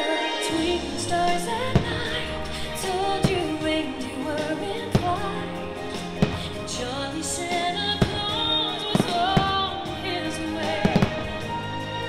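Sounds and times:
festive music with singer: 0.0 - 12.0
firework bangs: 5.9 - 6.7, 7.8 - 11.7.

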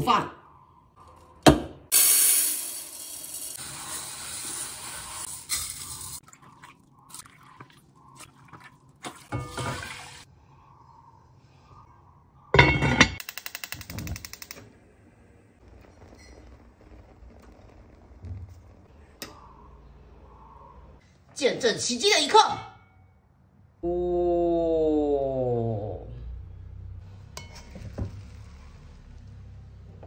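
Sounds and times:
water pouring into metal pot: 1.9 - 10.2.

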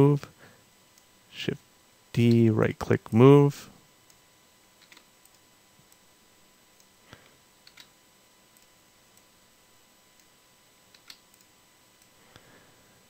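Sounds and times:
keyboard and mouse clicks: 4.8 - 5.4, 7.6 - 7.9, 10.9 - 11.5.

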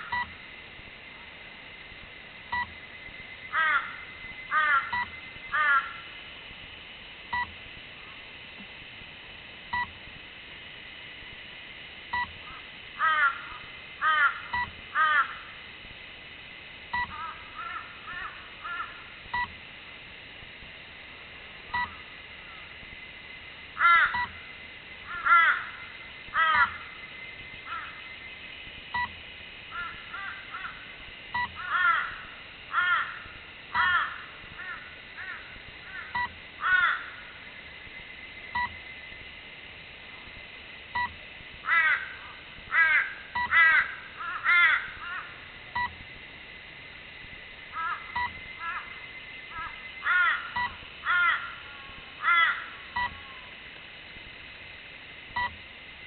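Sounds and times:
thin high whine: 0.0 - 56.0
faint short beeps: 2.5 - 2.8, 7.3 - 7.5, 9.7 - 9.9, 12.1 - 12.3, 19.3 - 19.5, 21.7 - 21.9, 24.2 - 24.4, 28.9 - 29.2, 36.2 - 36.4, 38.6 - 38.8, 41.0 - 41.2, 45.8 - 46.0, 48.2 - 48.4, 50.6 - 50.8, 53.0 - 53.5, 55.4 - 55.6
bird cawing: 3.5 - 6.1, 12.4 - 15.6, 17.0 - 19.1, 23.8 - 24.4, 25.0 - 27.0, 27.6 - 28.2, 29.7 - 30.9, 31.6 - 37.4, 41.6 - 45.4, 47.7 - 53.4.

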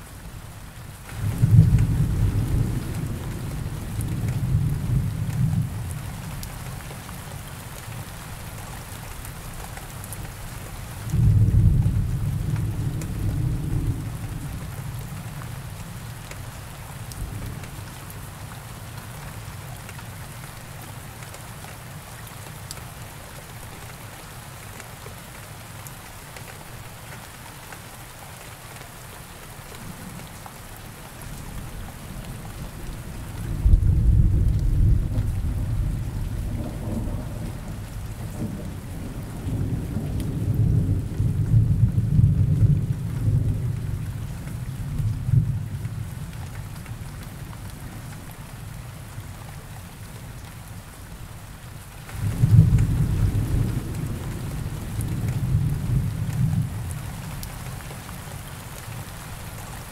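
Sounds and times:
steady rain: 0.0 - 59.9
thunder rumbling: 32.6 - 44.1, 52.2 - 57.0.

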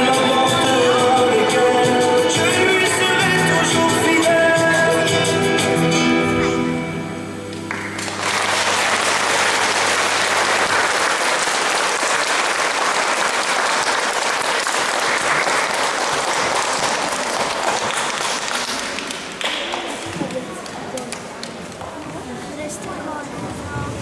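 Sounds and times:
audience applauding: 7.6 - 21.6.

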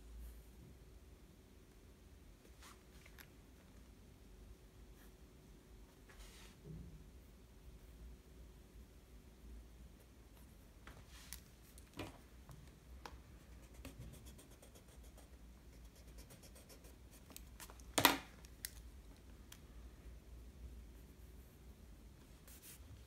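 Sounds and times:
pencil scratching on paper: 13.4 - 17.4, 22.4 - 23.0.

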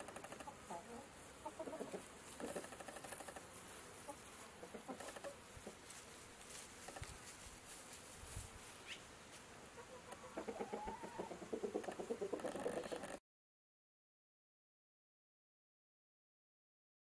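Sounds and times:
chickens clucking: 0.0 - 3.4, 4.0 - 6.0, 9.7 - 13.2.

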